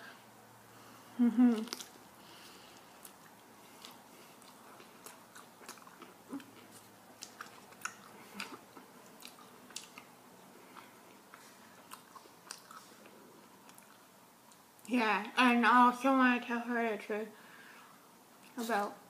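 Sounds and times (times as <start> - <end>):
person chewing: 1.3 - 14.9.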